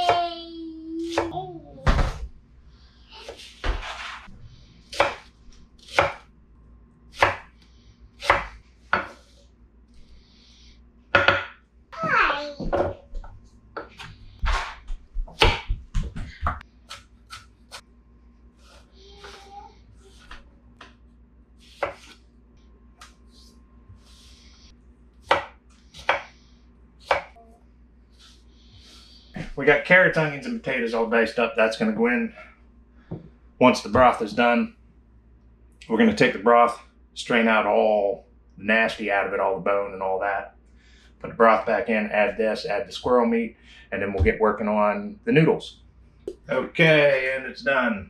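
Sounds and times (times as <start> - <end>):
knife chopping on wooden board: 4.9 - 6.3, 7.2 - 7.5, 8.2 - 9.3, 13.8 - 17.5, 21.7 - 22.2, 25.2 - 26.3, 27.0 - 27.4.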